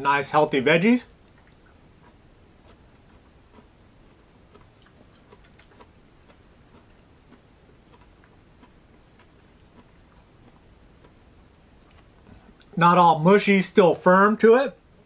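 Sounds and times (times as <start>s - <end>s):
faint chewing: 1.0s - 12.8s
small irregular clicks: 4.6s - 5.9s.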